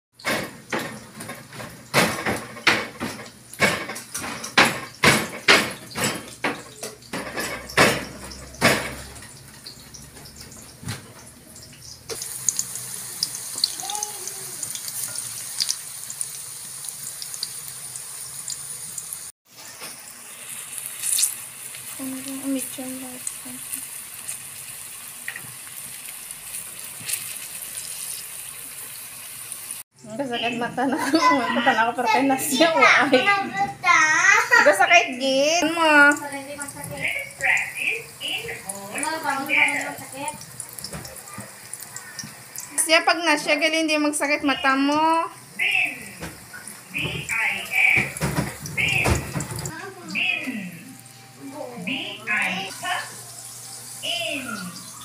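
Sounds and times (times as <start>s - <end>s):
bananas frying in hot oil: 0.2s - 33.4s, 34.2s - 50.6s, 52.0s - 55.0s
sharp oil crackles: 8.2s - 19.3s, 20.0s - 29.8s, 35.7s - 42.9s.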